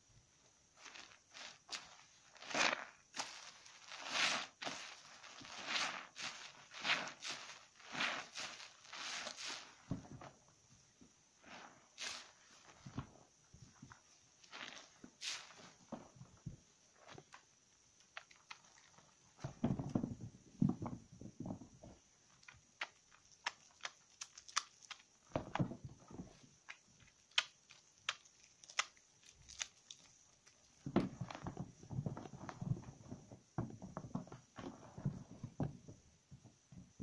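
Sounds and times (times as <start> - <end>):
soapy lather squelching: 0.8 - 9.8, 14.5 - 15.8, 22.8 - 25.1, 26.5 - 30.7
wet clicks and bubble pops: 26.6 - 29.8.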